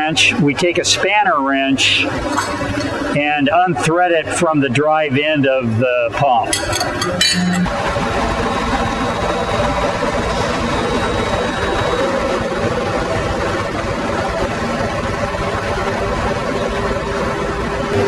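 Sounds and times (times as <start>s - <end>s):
machinery drone: 6.5s - 18.0s.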